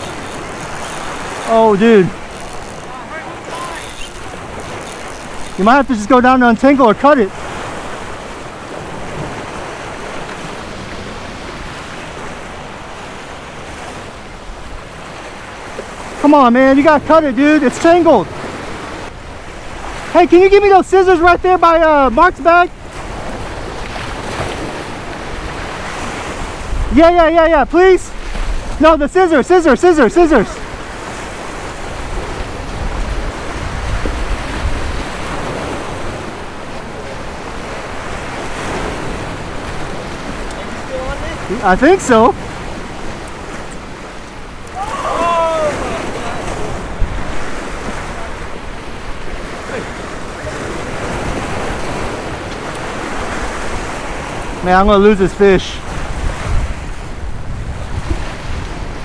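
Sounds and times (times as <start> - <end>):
surf breaking against rocks: 0.0 - 59.0
wind rumbling on microphone: 22.7 - 27.0, 30.6 - 54.7, 55.8 - 59.0.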